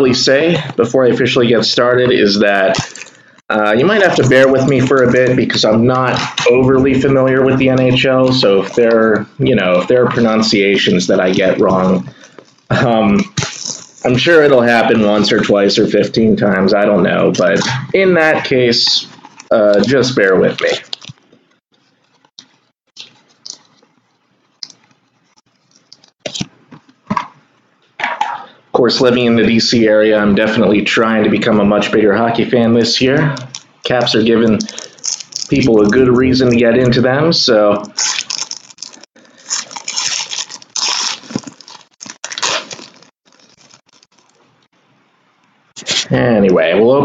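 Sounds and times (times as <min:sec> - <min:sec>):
foil wrapper crinkling and tearing: 0:02.6 - 0:03.3, 0:13.4 - 0:14.2, 0:19.1 - 0:26.5, 0:33.4 - 0:36.0, 0:37.8 - 0:44.5.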